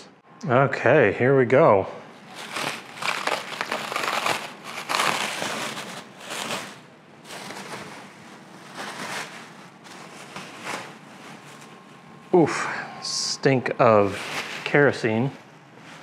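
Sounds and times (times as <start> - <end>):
plastic wrap crinkling: 2.2 - 12.4, 14.0 - 16.0.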